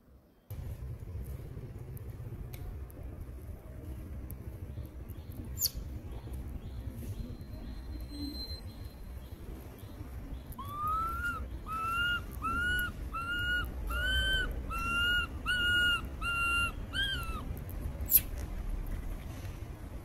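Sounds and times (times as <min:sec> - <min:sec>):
low rumble: 0:00.5 - 0:08.8
monkey calling: 0:10.6 - 0:17.4.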